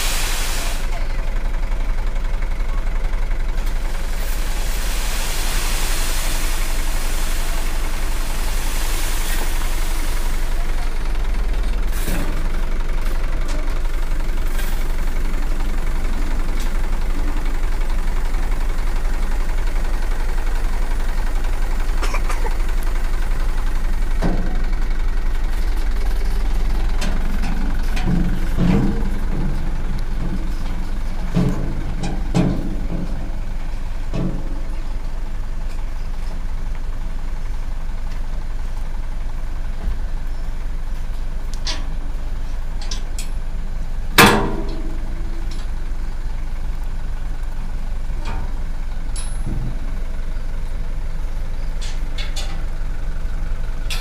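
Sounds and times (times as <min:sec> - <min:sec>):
soil sliding off with hiss: 0:00.0 - 0:01.0, 0:03.6 - 0:11.0, 0:11.7 - 0:13.2, 0:13.8 - 0:34.1
truck engine running: 0:00.0 - 0:54.0.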